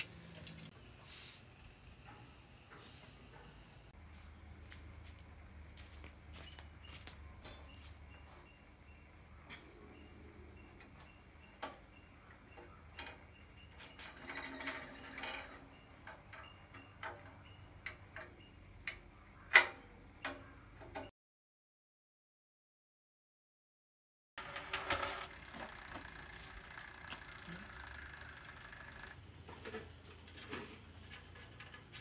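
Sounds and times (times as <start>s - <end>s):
metal parts rattling: 24.5s - 29.2s
tools and bicycle parts clicking: 24.6s - 29.2s.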